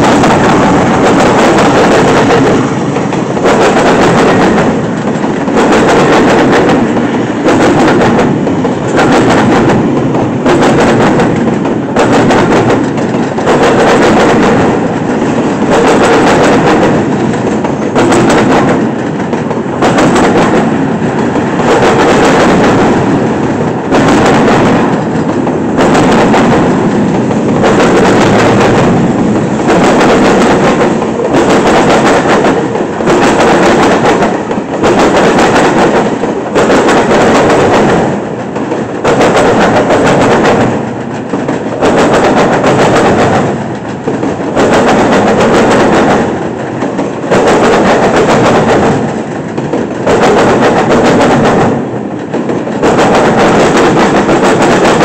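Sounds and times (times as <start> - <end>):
train wheels clattering on track: 0.0 - 55.0.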